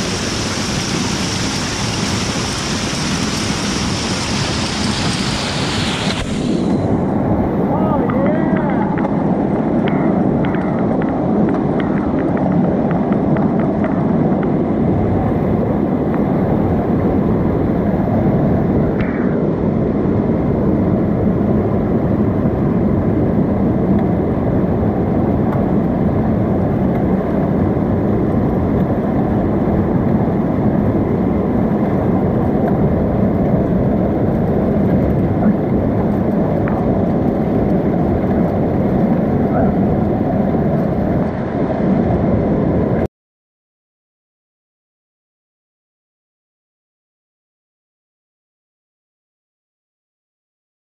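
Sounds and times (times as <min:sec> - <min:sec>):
whitewater rushing: 0:00.0 - 0:09.8.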